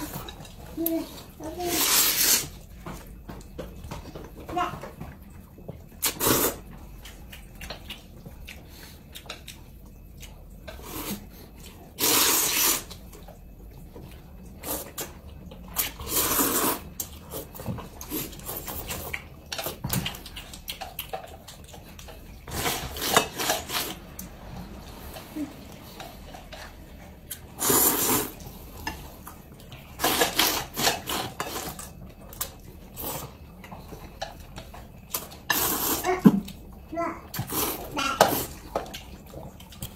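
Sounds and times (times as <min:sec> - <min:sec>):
people slurping noodles: 0:01.0 - 0:02.6, 0:06.0 - 0:06.7, 0:11.9 - 0:12.9, 0:15.8 - 0:19.0, 0:24.6 - 0:29.0, 0:35.1 - 0:36.5, 0:37.3 - 0:38.7.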